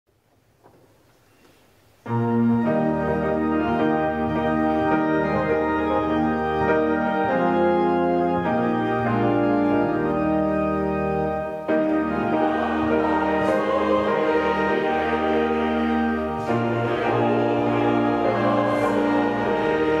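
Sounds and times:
piano: 0.2s - 20.0s
church organ: 0.6s - 20.0s
choir singing: 11.7s - 20.0s.

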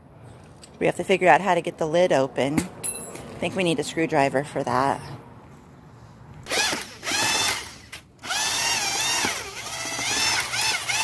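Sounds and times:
electric drill mixing thick coating: 6.5s - 11.0s.

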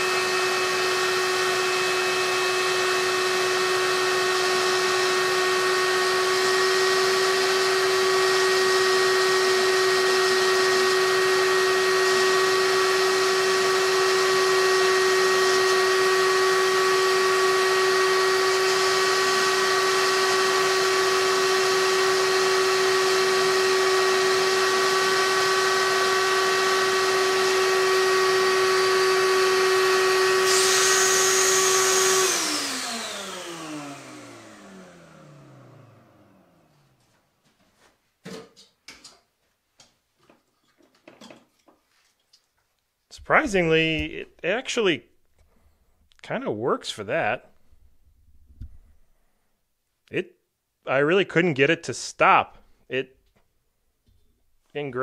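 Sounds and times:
air turbine rotary tool whine: 0.0s - 36.4s
shop vac running: 0.0s - 37.9s, 43.1s - 45.6s.

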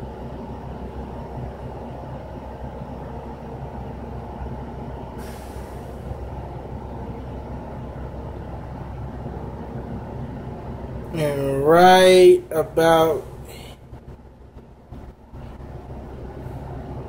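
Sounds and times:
steady mechanical hum: 0.0s - 17.0s
burst of hissing air: 5.2s - 6.1s.

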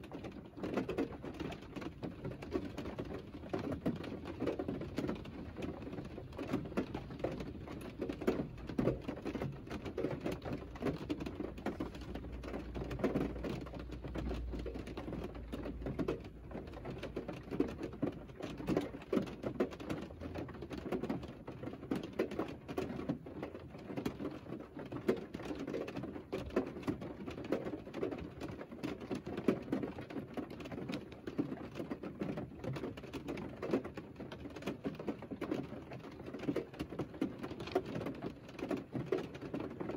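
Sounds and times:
rain tapping on car: 0.0s - 39.9s.

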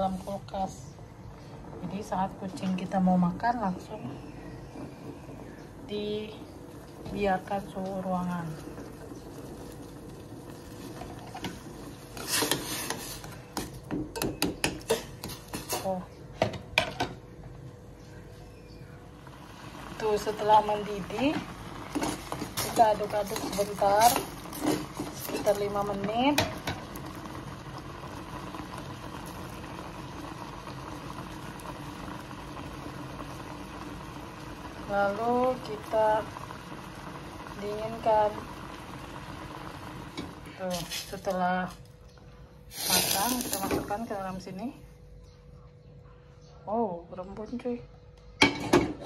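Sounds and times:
broth bubbling in pot: 0.0s - 44.8s
metal spoon scraping steel pot: 12.2s - 13.4s.

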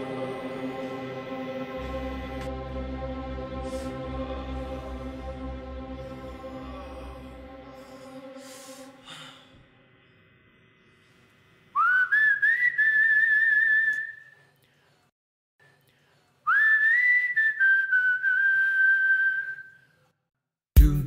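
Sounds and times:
person whistling: 11.8s - 14.4s, 16.5s - 19.9s.

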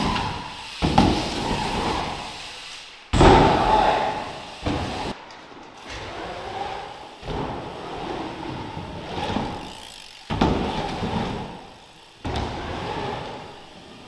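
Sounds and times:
bike landing thuds: 0.0s - 2.2s, 3.1s - 5.1s, 8.6s - 12.8s
bike tyres rolling on ramps: 0.0s - 14.0s.

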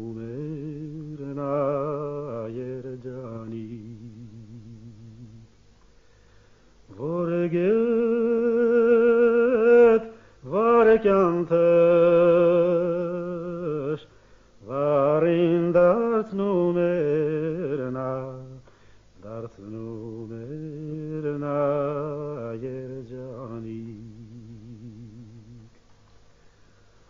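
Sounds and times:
man singing unaccompanied: 0.0s - 5.6s, 6.8s - 25.8s
singer breathing: 5.9s - 6.8s, 10.1s - 10.4s, 14.0s - 14.6s, 18.6s - 19.2s, 26.2s - 27.0s.

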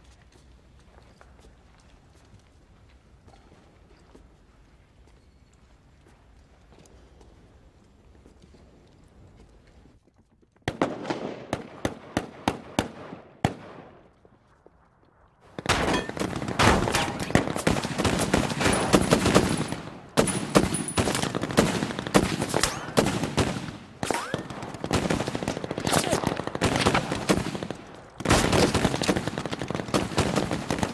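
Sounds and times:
machine-gun fire: 15.6s - 30.9s
single rifle shots: 15.6s - 30.9s.

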